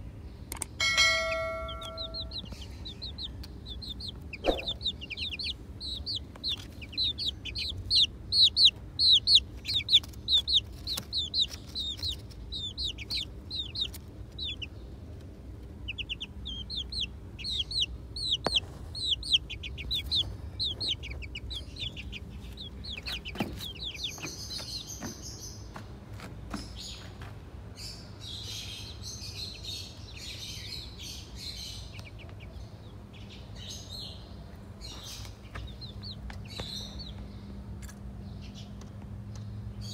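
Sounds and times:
baby chicks peeping: 0:00.0 - 0:39.9.

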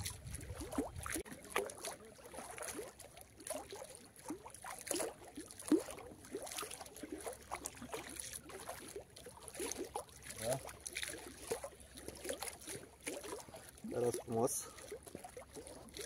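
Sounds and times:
small waves lapping: 0:00.0 - 0:16.0.

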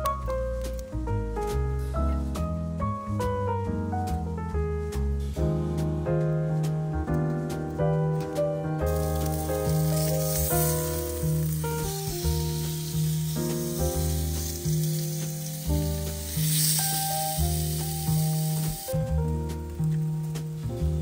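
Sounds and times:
background music with bass: 0:00.0 - 0:21.0
steaks sizzling on grill: 0:08.8 - 0:20.6.

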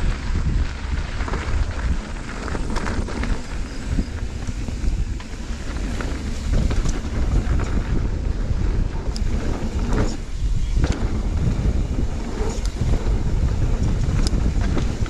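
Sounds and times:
bike clicks and rattles: 0:00.0 - 0:15.0
tyres rumbling on gravel trail: 0:00.0 - 0:15.0
wind buffeting microphone: 0:00.0 - 0:15.0.

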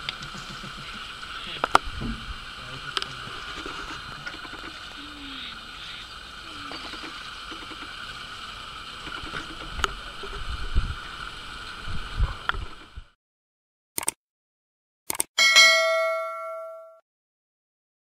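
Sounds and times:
low thuds: 0:01.9 - 0:02.4.

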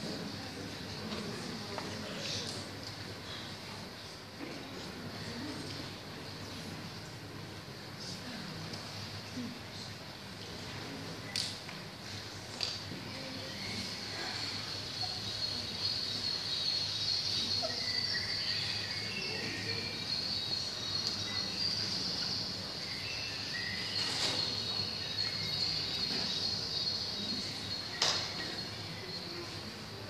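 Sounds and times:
crickets chirping: 0:13.1 - 0:30.0.

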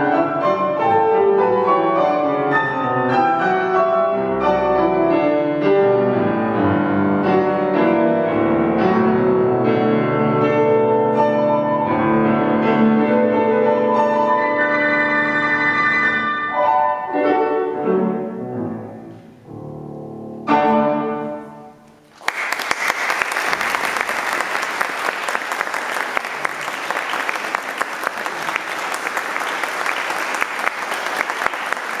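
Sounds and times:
grand piano classical piece: 0:00.0 - 0:32.0
audience applause: 0:22.1 - 0:32.0.

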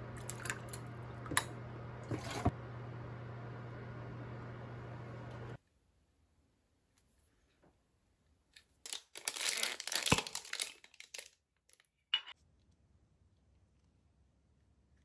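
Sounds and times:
plastic wrap crinkling: 0:08.8 - 0:11.9.

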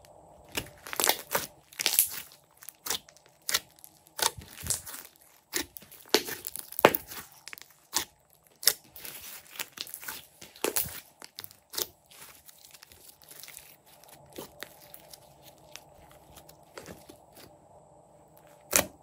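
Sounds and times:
slime clicking and popping: 0:00.5 - 0:12.4.

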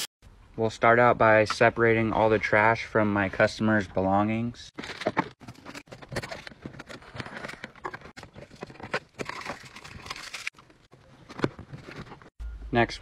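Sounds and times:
hands rummaging through small items: 0:04.8 - 0:12.3.

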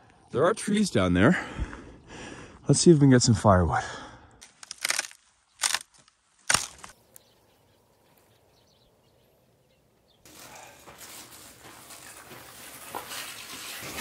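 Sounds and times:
dry branches snapping: 0:04.4 - 0:07.2.

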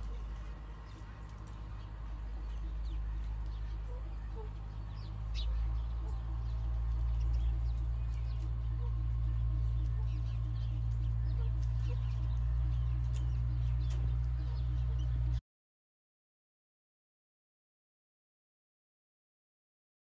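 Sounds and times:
loud low rumble: 0:00.0 - 0:15.4
small birds chirping: 0:00.0 - 0:15.4.

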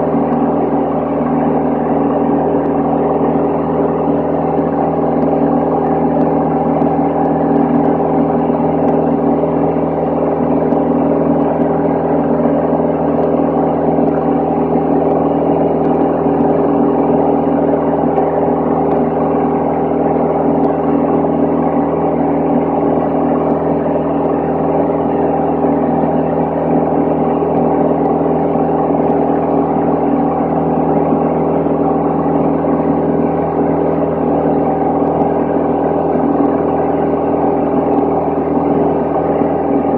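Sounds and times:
airplane engine drone in cabin: 0:00.0 - 0:39.9.

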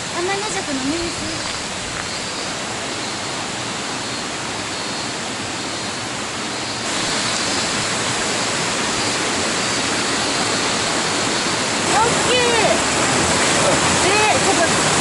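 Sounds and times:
mountain stream rushing: 0:00.0 - 0:15.0.

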